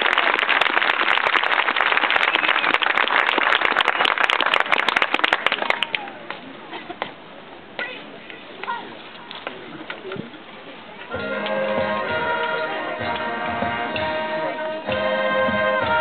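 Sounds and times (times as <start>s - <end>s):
crowd clapping: 0.0s - 6.5s
crowd voices: 4.0s - 16.0s.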